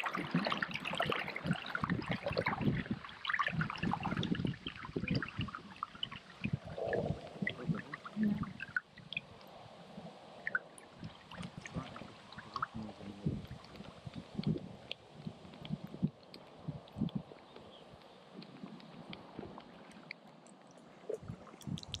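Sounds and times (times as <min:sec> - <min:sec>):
paddle splashing water: 0:00.0 - 0:09.4
water dripping: 0:00.0 - 0:09.6, 0:10.4 - 0:22.0.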